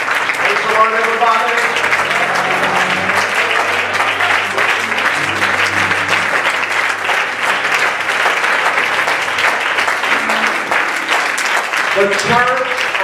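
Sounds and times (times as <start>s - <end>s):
congregation applauding: 0.0s - 13.0s
low sustained instrumental music: 1.8s - 8.7s.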